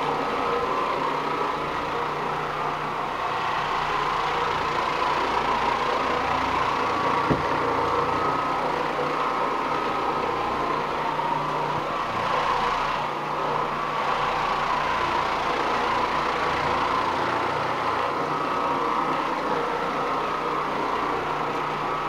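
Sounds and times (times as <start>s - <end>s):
floor machine motor humming: 0.0s - 22.0s
brief knock: 7.3s - 7.5s.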